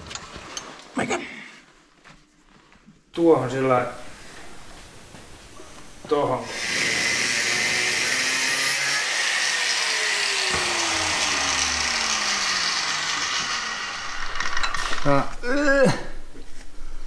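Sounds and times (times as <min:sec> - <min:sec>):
angle grinder cutting steel: 0:06.5 - 0:15.3
grinder disc coasting down: 0:06.6 - 0:15.4.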